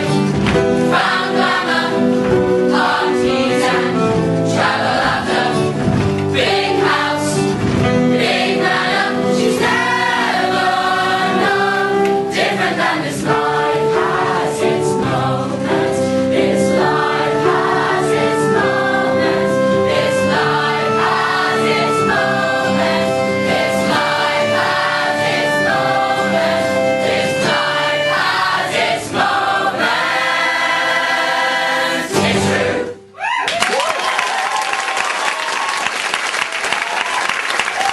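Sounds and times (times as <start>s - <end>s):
chorus singing long notes: 6.4s - 33.1s.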